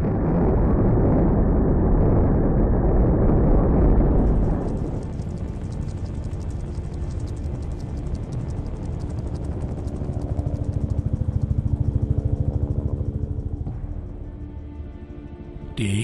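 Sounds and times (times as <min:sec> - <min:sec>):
helicopter rotor and engine drone: 0:04.2 - 0:14.5.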